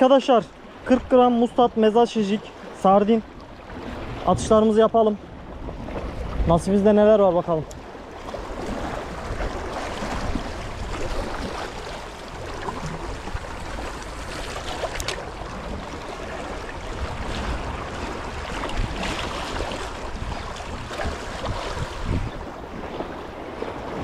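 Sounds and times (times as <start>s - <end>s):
wind rumbling on microphone: 3.4s - 24.0s
sea water splashing against concrete: 7.6s - 24.0s.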